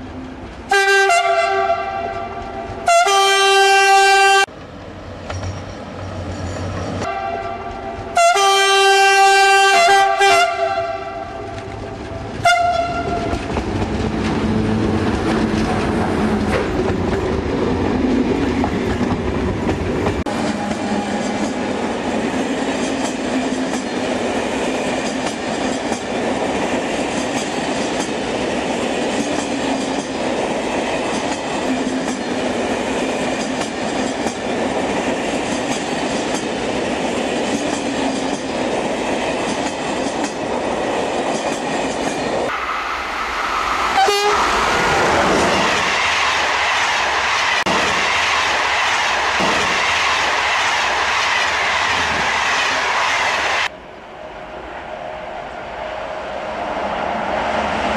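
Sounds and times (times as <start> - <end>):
train rolling on rails: 0.0 - 57.9
train horn toot: 0.7 - 4.5, 7.0 - 11.5, 12.4 - 13.4, 44.0 - 44.5
rhythmic clickety-clack: 13.0 - 14.4, 33.1 - 36.6, 37.2 - 38.6.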